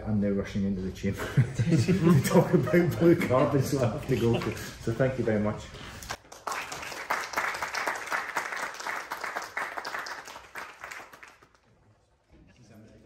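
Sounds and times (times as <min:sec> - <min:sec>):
audience applauding: 0:06.2 - 0:11.7.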